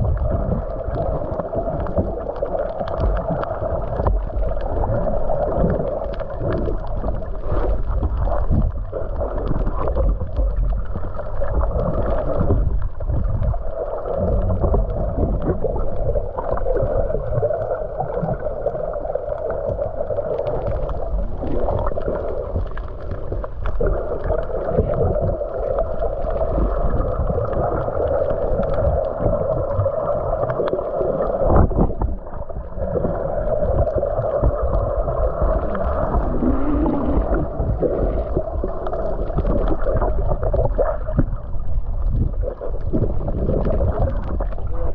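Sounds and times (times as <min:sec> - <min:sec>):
low rumble: 0:00.0 - 0:44.9
muffled water sloshing and gurgling: 0:00.0 - 0:44.9.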